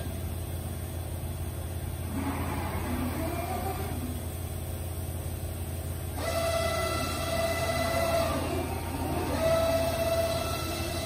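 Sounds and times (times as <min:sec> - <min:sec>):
low machine hum: 0:00.0 - 0:11.0
cnc router axis whine: 0:06.2 - 0:11.0.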